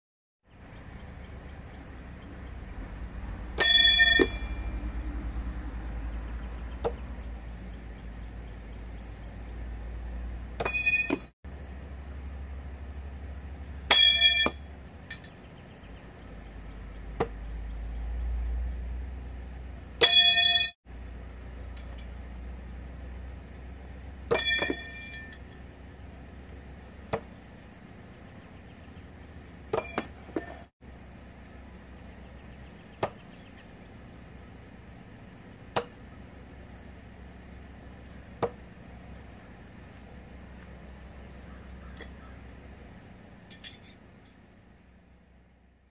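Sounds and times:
knives striking wooden target: 0:10.6 - 0:11.3, 0:27.1 - 0:27.4, 0:35.7 - 0:36.0.

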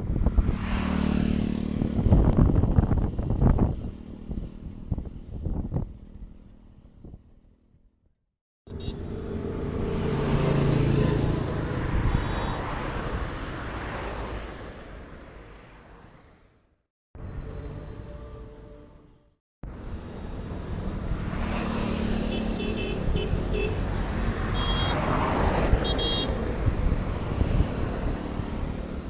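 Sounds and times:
wind rumbling on microphone: 0:00.0 - 0:07.5, 0:25.3 - 0:29.0
passing motor traffic: 0:00.0 - 0:07.8, 0:08.7 - 0:16.6, 0:19.6 - 0:29.0.

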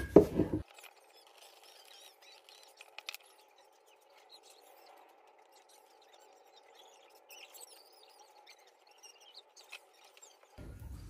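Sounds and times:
faint high squeaky chirps: 0:00.0 - 0:11.0.

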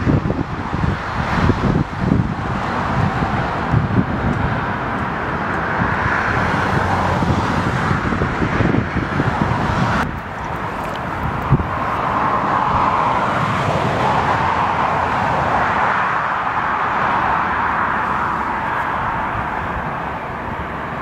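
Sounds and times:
airliner jet engines overhead: 0:00.0 - 0:21.0
wind buffeting microphone: 0:00.0 - 0:21.0.

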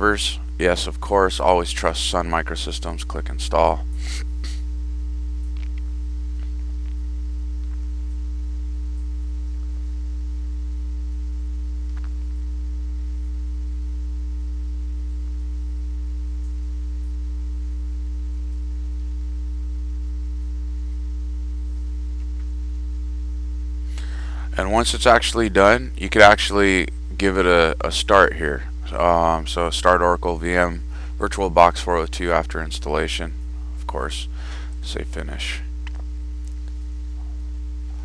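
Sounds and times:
electrical mains hum: 0:00.0 - 0:38.0.

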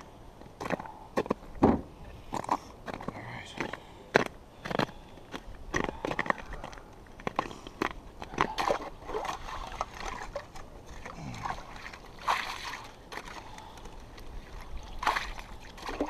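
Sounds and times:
icy water sloshing: 0:05.8 - 0:16.0.

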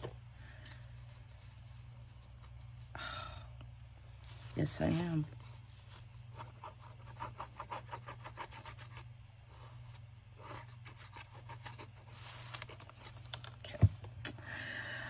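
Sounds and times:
paper rubbing and scraping: 0:00.7 - 0:02.9, 0:04.1 - 0:13.5.

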